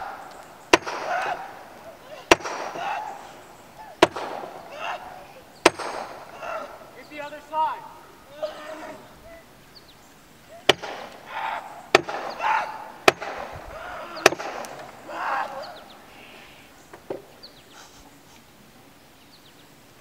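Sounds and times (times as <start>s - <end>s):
hammer striking wood: 0.7s - 1.3s, 2.3s - 2.9s, 4.0s - 4.6s, 5.6s - 6.2s, 10.7s - 11.2s, 11.9s - 12.4s, 13.0s - 13.5s, 14.2s - 14.8s
person crying out: 4.7s - 5.4s, 8.3s - 9.5s, 15.0s - 16.4s.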